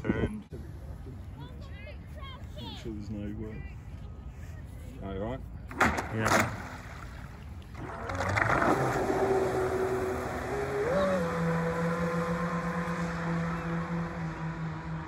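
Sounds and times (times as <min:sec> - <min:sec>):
boat splashing: 0:05.7 - 0:15.0.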